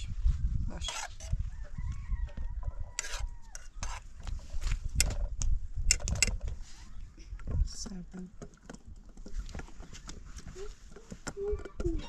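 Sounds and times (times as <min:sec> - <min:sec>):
rooster crowing: 0:01.5 - 0:03.7
sharp knocks and clicks: 0:04.9 - 0:06.5.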